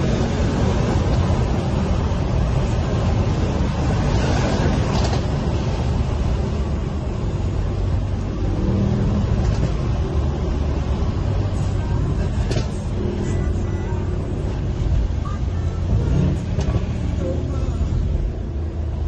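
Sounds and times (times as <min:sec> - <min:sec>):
car engine accelerating: 0:00.0 - 0:19.0
road and wind noise: 0:00.0 - 0:19.0.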